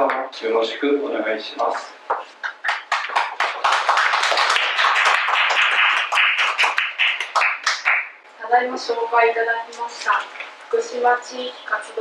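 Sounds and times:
audience applauding: 2.4 - 8.2.

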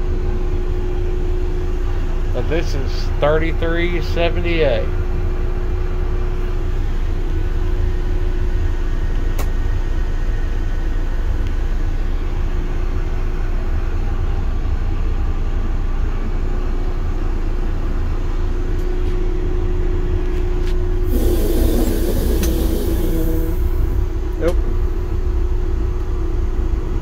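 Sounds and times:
diesel engine rumbling: 0.1 - 9.1, 11.7 - 27.0
loud broad noise: 21.1 - 24.5
click: 22.4 - 22.6.

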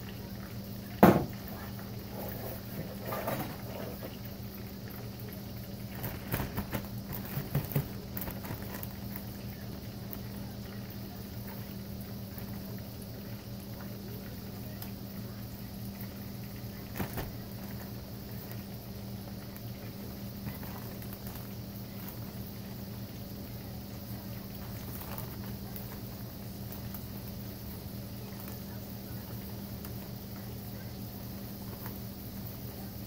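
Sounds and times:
plastic bag rustling: 5.9 - 9.3, 20.4 - 22.4, 24.6 - 26.1.

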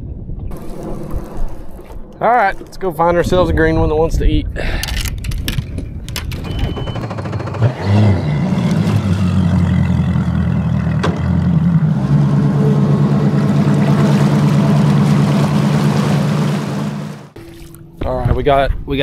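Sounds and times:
outboard motor running: 6.5 - 17.7.

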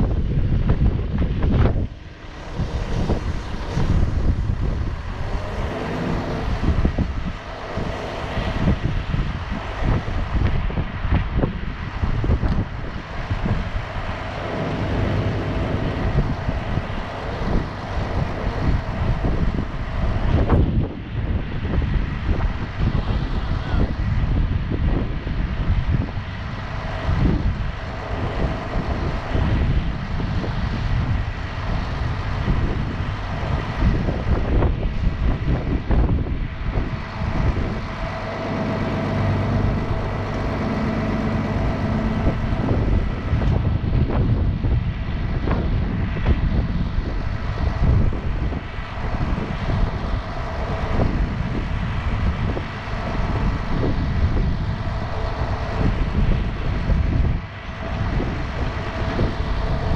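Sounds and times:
diesel engine idling: 0.0 - 59.9
wind buffeting microphone: 0.0 - 59.9.

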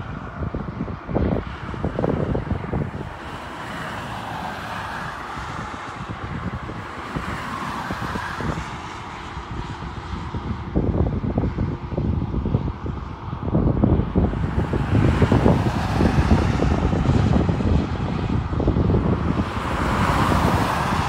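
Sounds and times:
road traffic passing: 0.0 - 21.0
wind buffeting microphone: 0.0 - 21.0.

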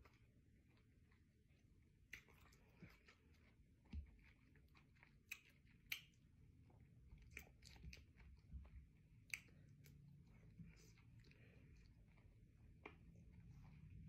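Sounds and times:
chewing soft fruit: 0.0 - 14.0
wet mouth clicks: 5.3 - 6.2.

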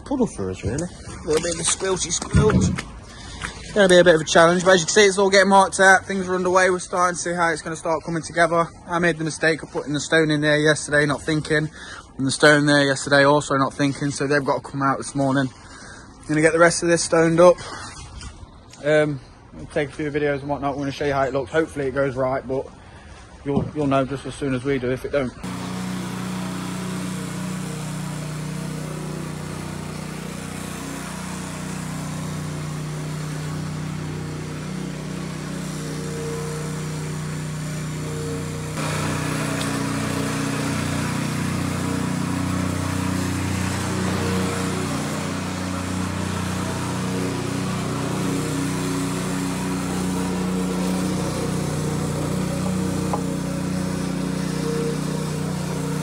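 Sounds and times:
plate compactor engine running: 25.4 - 56.0.

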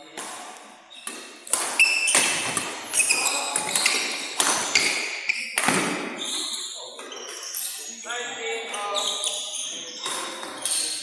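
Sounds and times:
racket hitting shuttlecock: 0.2 - 6.2
shoes squeaking on court floor: 0.8 - 11.0.

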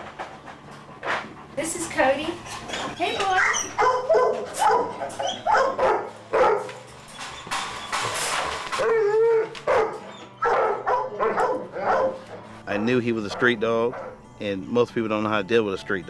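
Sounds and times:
dog wavering cry: 2.7 - 6.6, 8.8 - 12.4
dog barking: 3.4 - 6.8, 8.8 - 14.2.

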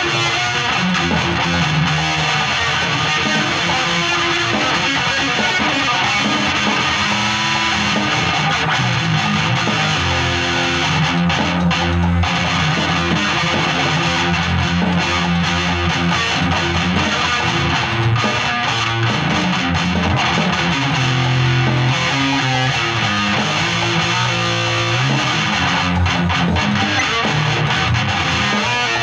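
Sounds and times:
electric guitar through amplifier: 0.0 - 29.0.

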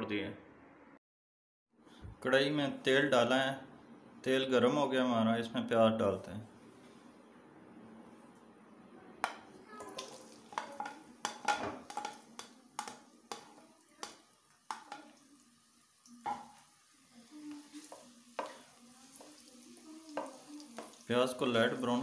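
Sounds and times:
spatula scraping pan: 9.3 - 15.2, 17.3 - 21.1
onions sizzling in oil: 9.3 - 22.0.

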